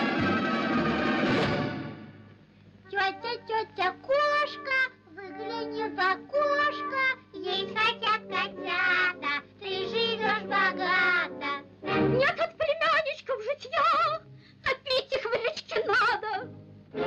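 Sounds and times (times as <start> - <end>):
musical accompaniment: 0.0 - 2.5, 4.5 - 12.4, 16.4 - 17.0.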